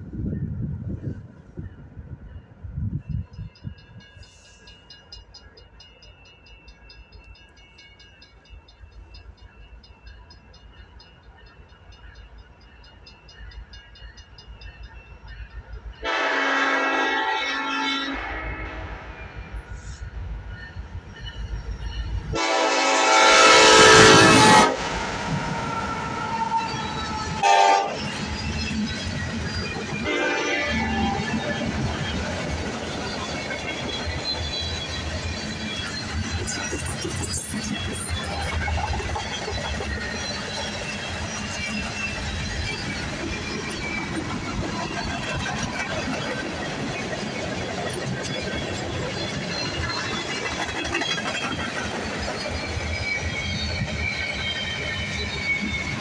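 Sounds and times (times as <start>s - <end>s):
wind buffeting microphone: 0.0s - 4.2s
freight train rumbling past: 0.0s - 56.0s
crossing warning bell ringing: 1.4s - 56.0s
train horn blast: 16.0s - 19.2s, 22.3s - 28.1s, 30.0s - 31.5s.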